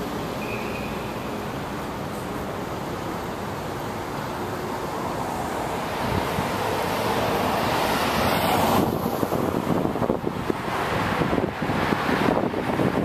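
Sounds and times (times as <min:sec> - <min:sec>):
street traffic: 0:00.0 - 0:13.0
wind buffeting microphone: 0:05.9 - 0:13.0.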